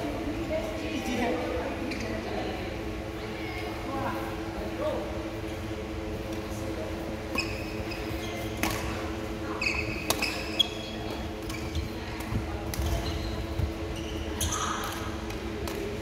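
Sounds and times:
steady hum: 0:00.0 - 0:16.0
rackets striking shuttlecock: 0:08.6 - 0:09.1, 0:10.0 - 0:10.5.

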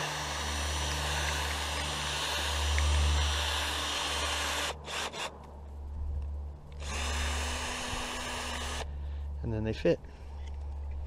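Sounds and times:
cordless drill boring plastic: 0:00.0 - 0:05.3, 0:06.8 - 0:08.8.

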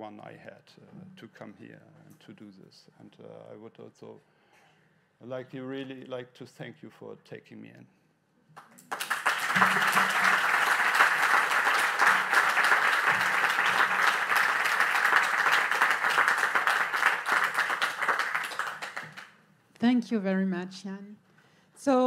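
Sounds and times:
audience applauding: 0:08.8 - 0:19.4.

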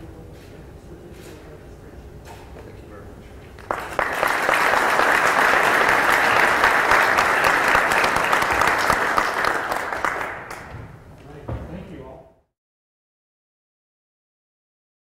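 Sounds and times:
crowd applauding: 0:03.6 - 0:10.8.

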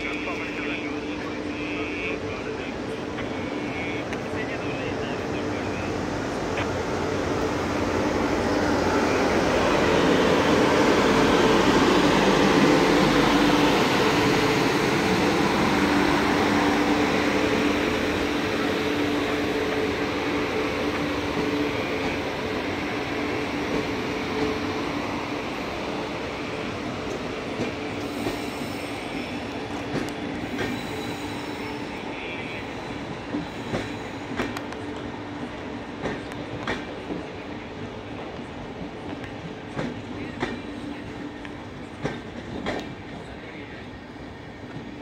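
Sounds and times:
train rumbling: 0:00.0 - 0:45.0
train wheels clicking: 0:26.6 - 0:31.6, 0:33.2 - 0:37.4, 0:38.2 - 0:43.4.

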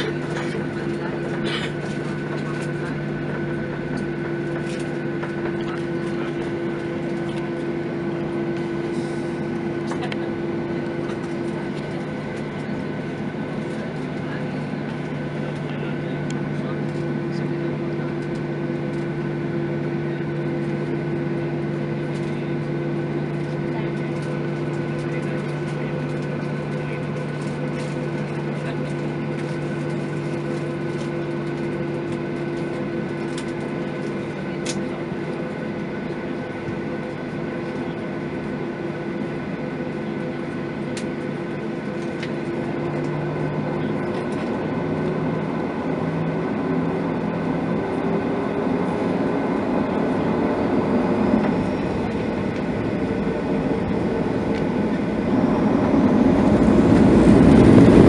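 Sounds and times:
jet engines humming in cabin: 0:00.0 - 0:58.0.

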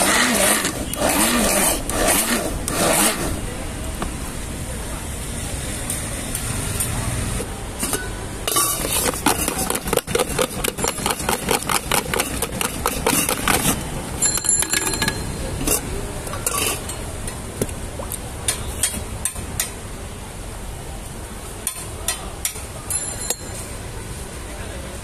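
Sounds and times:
ringing metal clink: 0:14.2 - 0:15.5, 0:22.9 - 0:23.6.

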